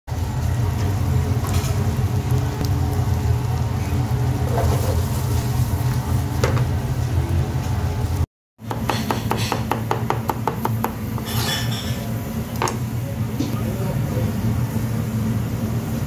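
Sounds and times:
pan sizzling: 0:00.1 - 0:08.2
knife chopping on cutting board: 0:08.7 - 0:11.0.

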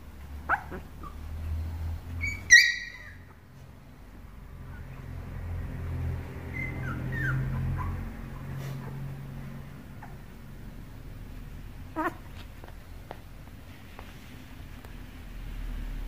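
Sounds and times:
puppies squeaking and whimpering: 0:00.4 - 0:03.5, 0:06.0 - 0:09.1, 0:11.9 - 0:12.3.

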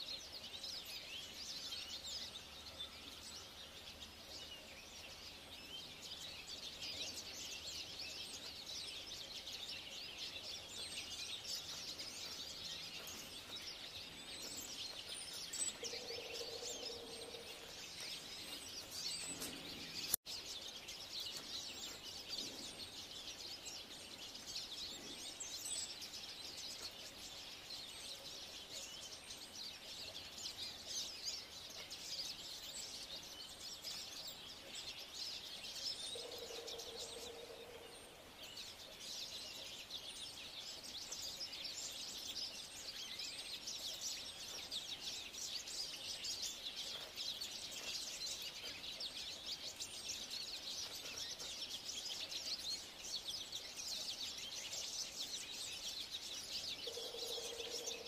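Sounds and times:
songbirds chirping: 0:00.0 - 0:58.0.

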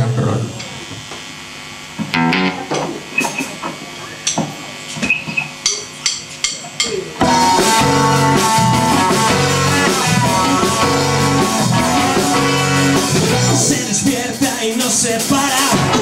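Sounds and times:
electric guitar chords: 0:00.4 - 0:03.8, 0:07.2 - 0:16.0
rock band playing: 0:02.1 - 0:03.6, 0:07.2 - 0:16.0
drum hits: 0:07.2 - 0:13.8.

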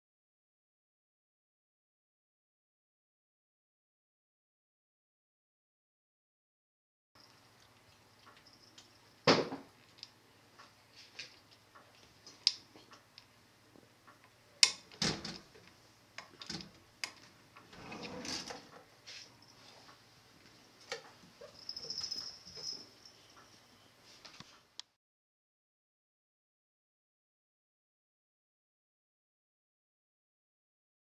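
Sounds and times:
faint steady hum: 0:07.2 - 0:25.0
drawer rattling: 0:17.7 - 0:18.8.

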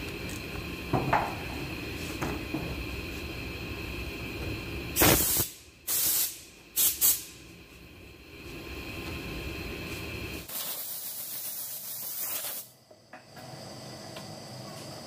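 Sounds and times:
pressurized gas hissing: 0:01.1 - 0:07.5, 0:08.2 - 0:12.8.

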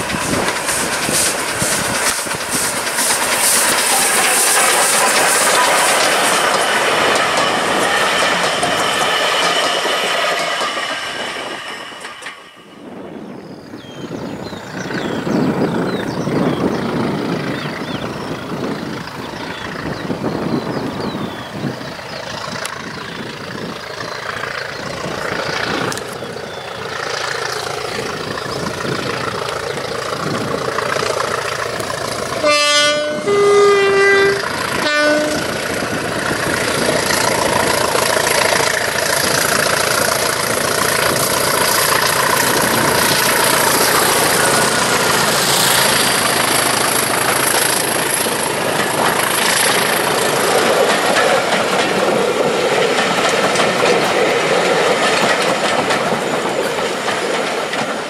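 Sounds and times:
train wheels clattering on rails: 0:00.0 - 0:13.2, 0:13.8 - 0:58.0
diesel locomotive engine: 0:00.0 - 0:58.0
two-tone locomotive horn: 0:32.4 - 0:35.7.

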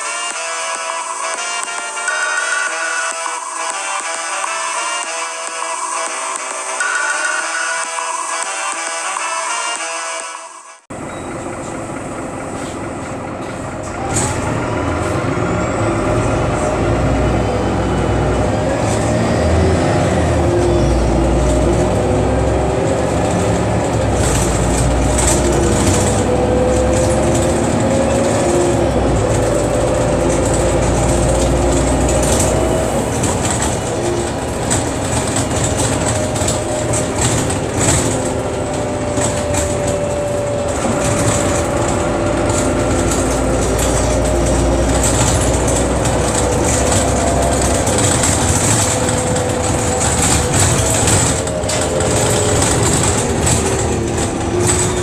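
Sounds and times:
bus engine and road rumble: 0:10.8 - 0:55.0
rattles from fittings: 0:23.0 - 0:55.0.

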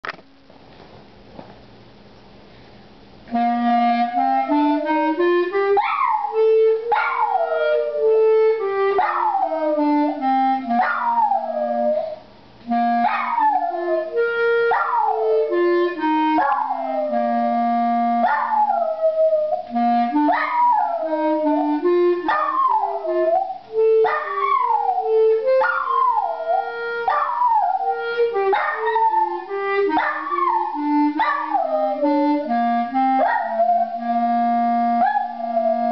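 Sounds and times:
instrument playing slow tune: 0:03.3 - 0:35.9
small dog howling: 0:05.8 - 0:08.0, 0:18.2 - 0:19.6, 0:20.3 - 0:21.2, 0:22.3 - 0:32.1.

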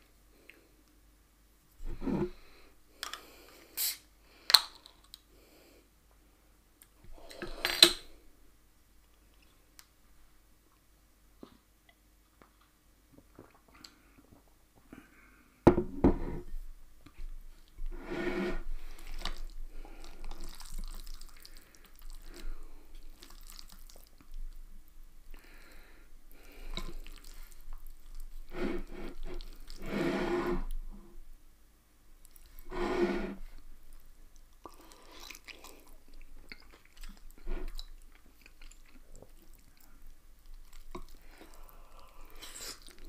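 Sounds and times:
sticky noodles squelching: 0:18.8 - 0:24.7, 0:26.3 - 0:30.0, 0:34.4 - 0:43.0.

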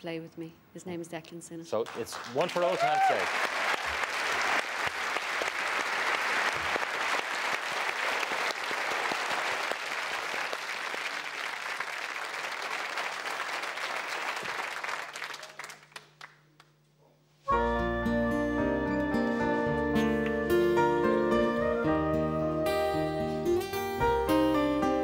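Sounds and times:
audience applauding: 0:01.8 - 0:16.7
music: 0:17.5 - 0:25.0.

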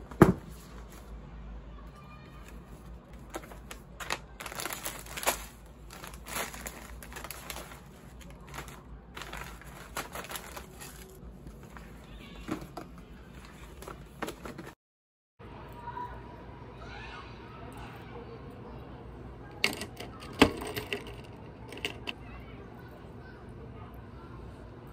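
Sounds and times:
plastic wrappers crinkling: 0:02.4 - 0:12.7.

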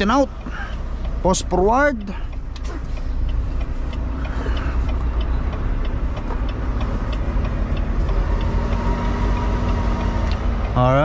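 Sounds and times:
faint regular ticking: 0:00.0 - 0:11.0
truck diesel engine running: 0:00.0 - 0:11.0.

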